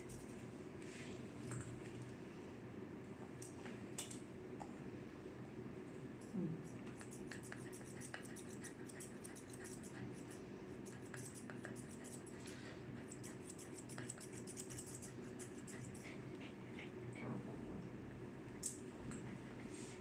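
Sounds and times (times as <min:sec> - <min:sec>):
shears snipping fur: 0:06.9 - 0:12.3.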